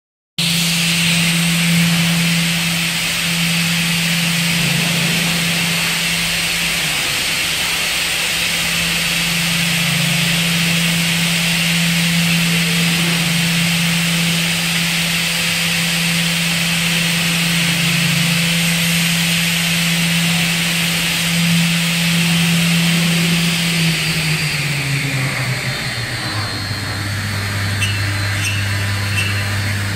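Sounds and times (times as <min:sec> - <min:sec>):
woodworking machine humming: 0:00.4 - 0:29.9.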